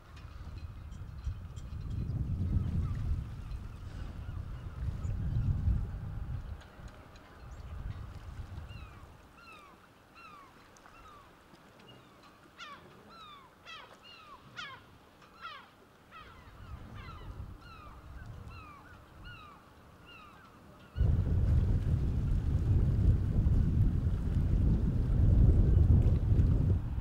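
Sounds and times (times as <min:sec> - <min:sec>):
wind on microphone: 0:00.0 - 0:09.2, 0:16.5 - 0:19.4, 0:21.0 - 0:27.0.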